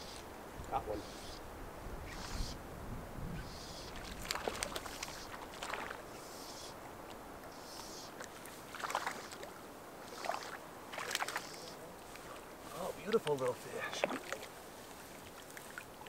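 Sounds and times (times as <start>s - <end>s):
small waves slapping: 3.9s - 6.2s, 8.2s - 16.0s
water lapping on rocks: 3.9s - 6.2s, 8.2s - 16.0s.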